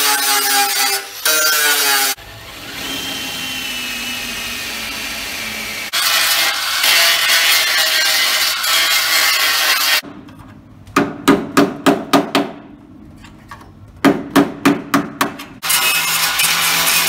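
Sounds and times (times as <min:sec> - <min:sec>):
angle grinder cutting steel: 0:00.0 - 0:10.0, 0:15.6 - 0:17.0.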